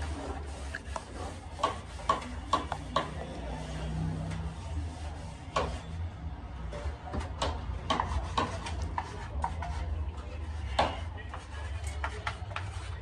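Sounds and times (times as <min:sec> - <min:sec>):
chalk tapping and scraping on board: 0:00.0 - 0:03.4, 0:04.3 - 0:06.0, 0:06.8 - 0:13.0
duster rubbing chalkboard: 0:00.0 - 0:06.0, 0:07.8 - 0:13.0.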